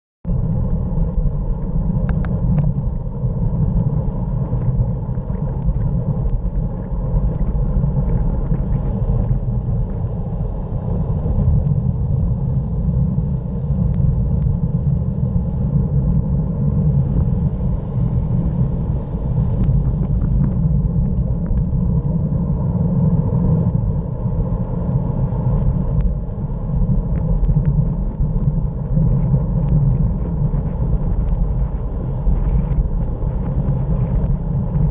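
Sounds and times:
wind buffeting microphone: 0.3 - 34.9
thin high hiss: 16.9 - 20.6.

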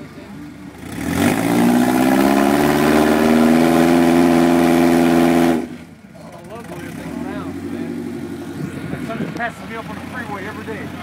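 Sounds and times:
engine revving hard: 0.7 - 5.8.

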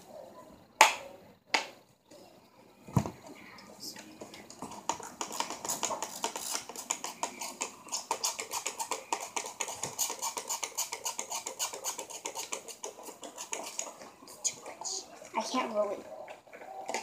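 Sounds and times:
slime stirred in a bowl: 3.8 - 17.0.

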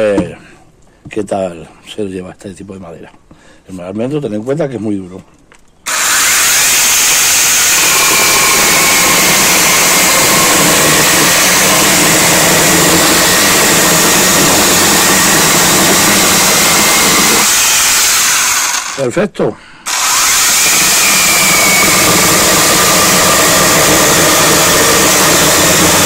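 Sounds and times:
battery chainsaw cutting log: 5.9 - 19.1, 19.8 - 26.0.

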